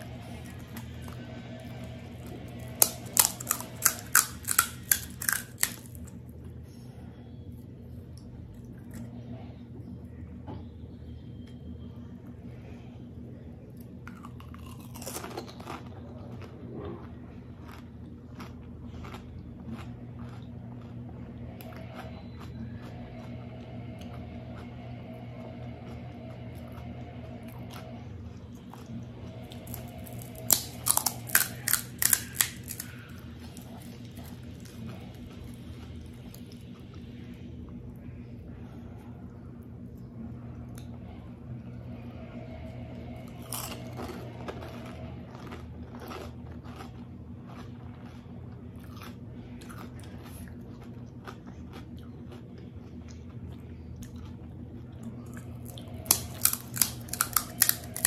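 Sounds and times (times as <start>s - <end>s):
low steady hum: 0.0s - 58.0s
crisp shell cracking: 2.6s - 6.1s, 29.6s - 33.7s, 56.0s - 58.0s.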